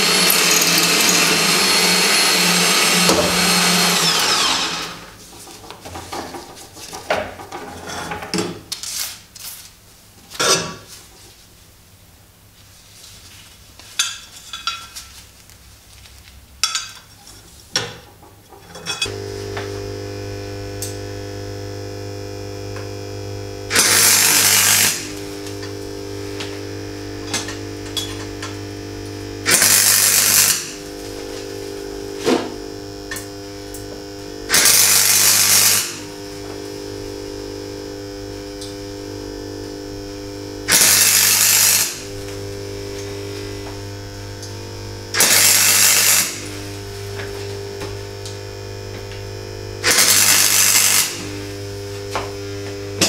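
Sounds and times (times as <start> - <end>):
welder crackling bursts: 0.0 - 5.2, 19.1 - 53.0
welding machine electrical hum: 0.0 - 9.8, 17.6 - 53.0.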